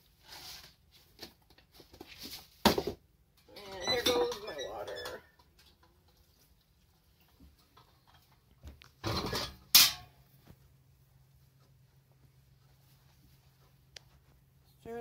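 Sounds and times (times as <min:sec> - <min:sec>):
utensils clinking on dishes: 0:03.6 - 0:05.8, 0:09.0 - 0:10.2
utensils clattering: 0:03.6 - 0:05.9, 0:09.0 - 0:10.2.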